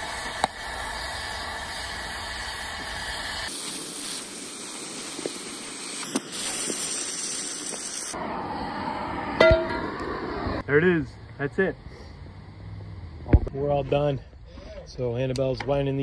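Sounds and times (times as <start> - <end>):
cutting torch hissing: 0.0 - 9.4, 11.4 - 13.5.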